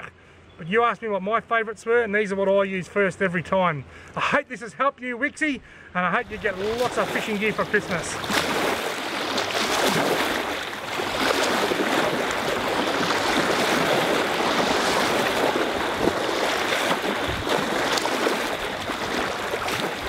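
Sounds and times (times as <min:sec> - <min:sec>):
rushing splashing water: 0:06.2 - 0:20.0.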